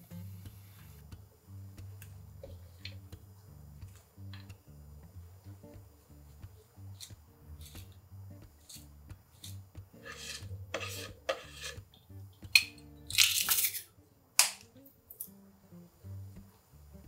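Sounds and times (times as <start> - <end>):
soft background music: 0.0 - 17.0
garlic press crushing garlic: 7.0 - 8.0, 8.6 - 11.8, 12.5 - 15.3
short sharp rasp: 9.4 - 11.9
mushrooms dropped into a pan: 12.5 - 15.3.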